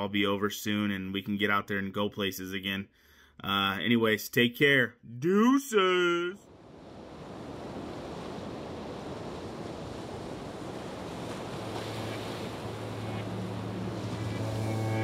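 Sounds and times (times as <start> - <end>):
ocean waves hissing: 8.1 - 15.0
low held drone note: 11.6 - 15.0.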